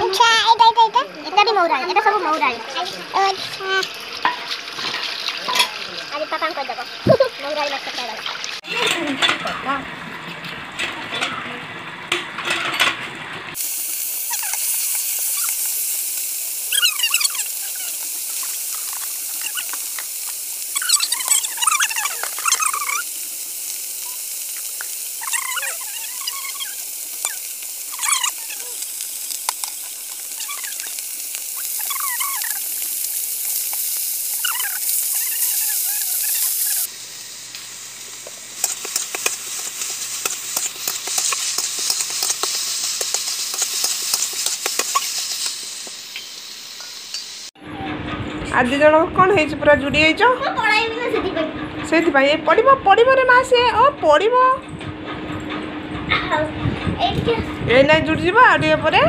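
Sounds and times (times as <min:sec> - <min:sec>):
fish sizzling in hot oil: 0:01.3 - 0:10.1, 0:13.5 - 0:47.6.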